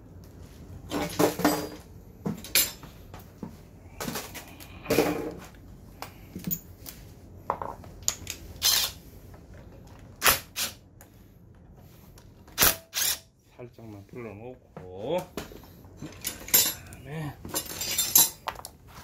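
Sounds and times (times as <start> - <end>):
metal tools clinking: 2.4 - 2.9, 16.0 - 18.5.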